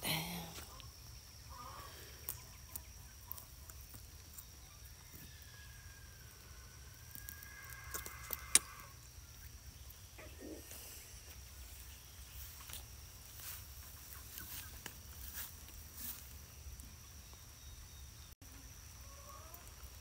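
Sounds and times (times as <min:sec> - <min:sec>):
footsteps crunching on mulch: 0:11.2 - 0:16.5.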